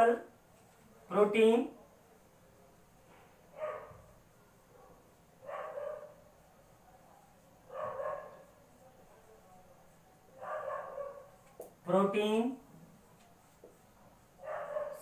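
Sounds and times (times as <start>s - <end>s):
dog barking: 3.5s - 4.1s, 4.7s - 6.2s, 7.7s - 8.6s, 10.4s - 11.3s, 14.4s - 15.0s.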